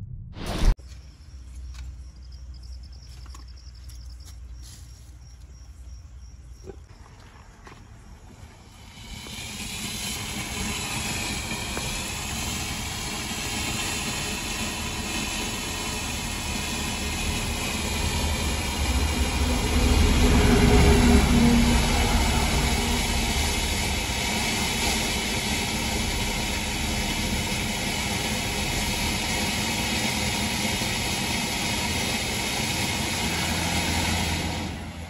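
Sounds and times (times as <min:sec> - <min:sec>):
firework fountain hissing: 0:08.3 - 0:35.0.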